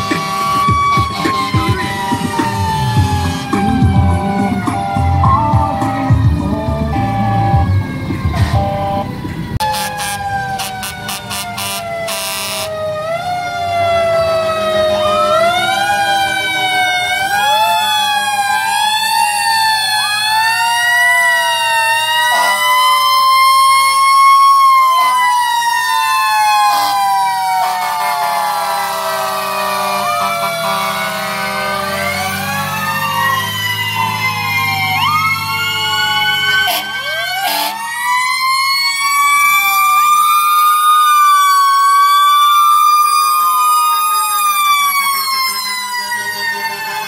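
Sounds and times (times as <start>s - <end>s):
fire truck sirens wailing: 0.0s - 47.0s.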